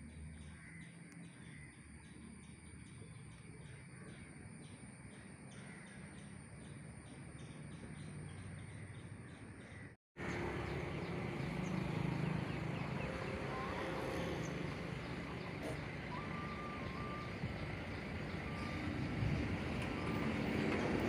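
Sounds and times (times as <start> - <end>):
insects chirping: 0.0 - 9.5, 10.2 - 21.0
diesel trucks running: 10.2 - 21.0.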